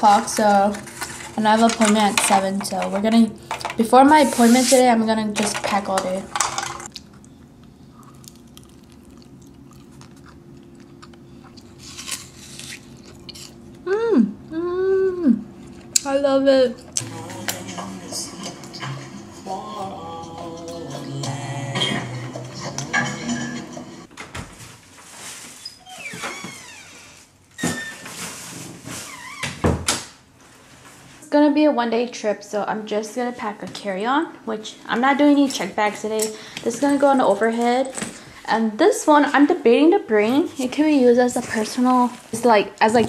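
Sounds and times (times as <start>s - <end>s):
crunching and chewing: 6.9s - 13.8s
closet door squeaking: 25.5s - 28.2s, 29.0s - 30.0s.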